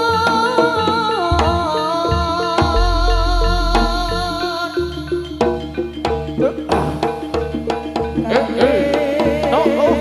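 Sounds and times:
percussion strikes: 0.0 - 10.0
wavering melody line: 1.5 - 6.0
deep low boom: 2.7 - 4.9.

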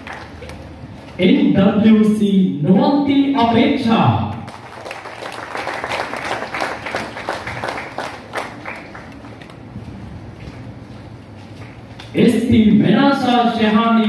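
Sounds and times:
audience applauding: 0.0 - 0.6, 4.5 - 9.6.

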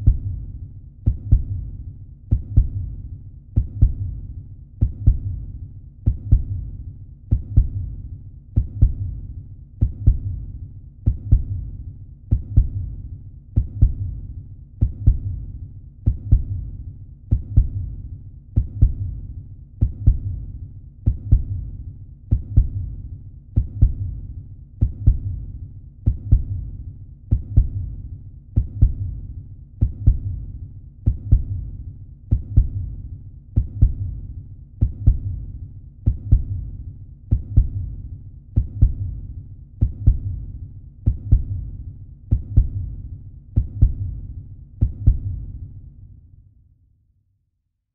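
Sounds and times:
heartbeat thuds: 0.0 - 0.4, 1.0 - 1.7, 3.6 - 4.2, 4.8 - 5.4, 6.0 - 6.7, 11.0 - 11.7, 14.8 - 15.4, 16.0 - 16.7, 19.8 - 20.4, 21.0 - 21.7, 24.8 - 25.4, 26.0 - 26.7, 28.6 - 29.2, 29.8 - 31.7, 32.3 - 33.0, 33.6 - 34.2, 34.8 - 35.4, 36.0 - 36.7, 37.3 - 38.0, 38.6 - 39.2, 39.8 - 41.7, 42.3 - 43.0, 43.6 - 44.2, 44.8 - 45.5.

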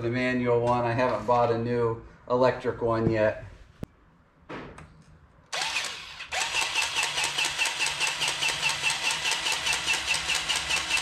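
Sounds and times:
electric grease gun pumping: 5.6 - 11.0.

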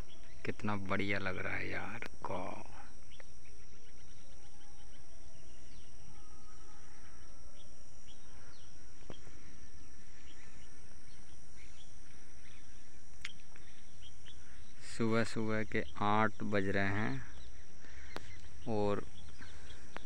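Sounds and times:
high insect trill: 0.0 - 20.0
bird chirps and clicks: 3.1 - 3.4, 13.1 - 14.4, 17.3 - 18.6.

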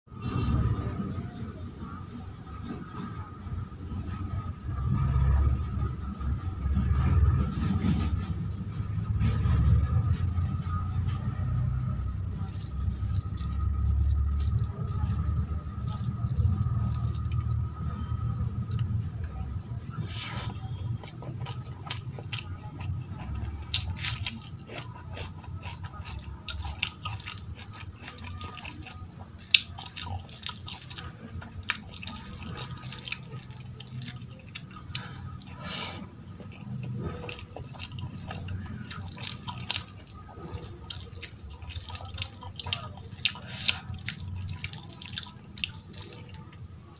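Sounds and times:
low hum: 0.1 - 42.4
wet squelching of fingers mixing food: 8.4 - 46.9.

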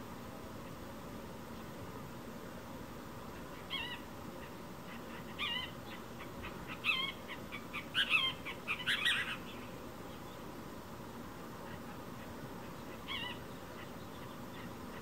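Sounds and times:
bird calling: 3.4 - 10.2, 11.6 - 15.0
bird chattering calls: 3.6 - 9.7.

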